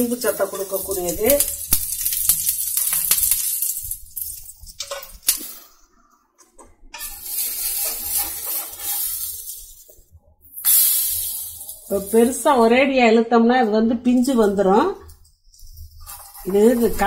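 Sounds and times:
oil sizzling on a griddle: 0.0 - 5.7, 7.0 - 12.1, 15.6 - 17.0.

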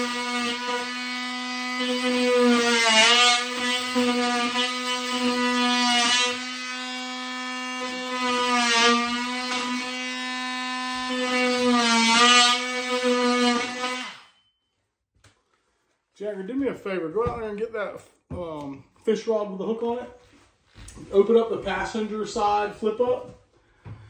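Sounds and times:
oscillating tool cutting drywall: 0.0 - 14.5.

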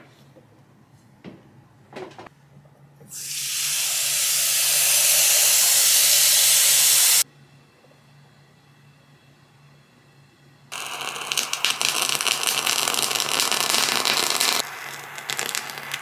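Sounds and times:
steam wand hissing: 3.1 - 7.3.

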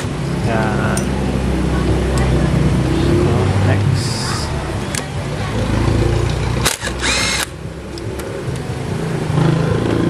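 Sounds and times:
small power tool whirring: 6.7 - 7.5.

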